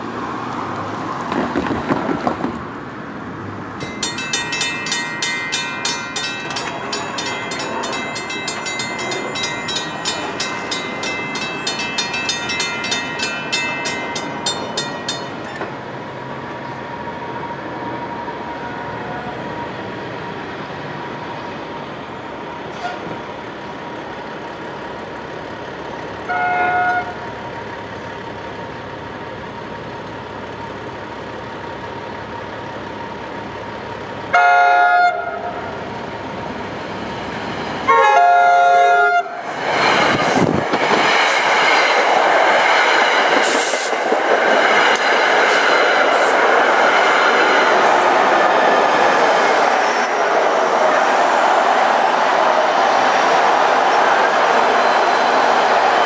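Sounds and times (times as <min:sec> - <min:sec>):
crossing warning bell ringing: 0:03.8 - 0:15.8
train horn toot: 0:26.2 - 0:27.2, 0:34.3 - 0:35.6, 0:37.9 - 0:39.4.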